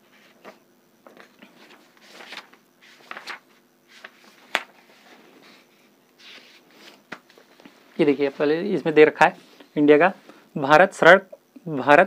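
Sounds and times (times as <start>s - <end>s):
paper pages rustling: 0.2s - 8.4s.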